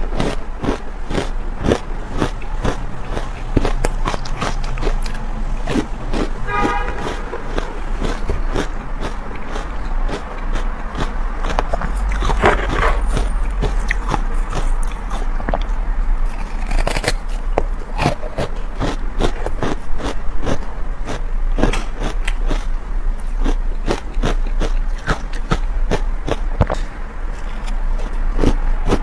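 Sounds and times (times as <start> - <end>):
ice being chewed: 0.0 - 29.0
chopsticks scraping ice: 11.5 - 15.3, 16.3 - 17.4.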